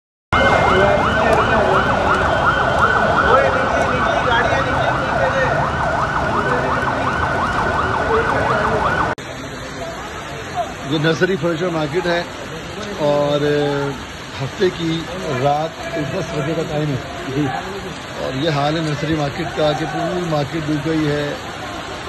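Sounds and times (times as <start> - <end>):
siren wailing: 0.3 - 9.2.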